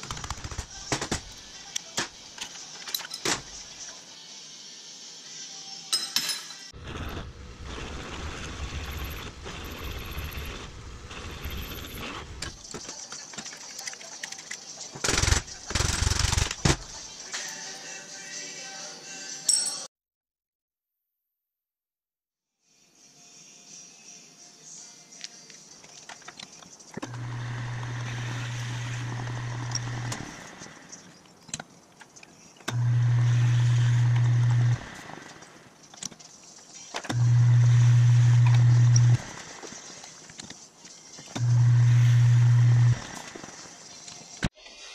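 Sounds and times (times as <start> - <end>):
metal lathe humming: 27.1 - 30.3, 32.7 - 34.8, 37.2 - 39.2, 41.4 - 43.0
drill press boring through steel: 37.1 - 39.2.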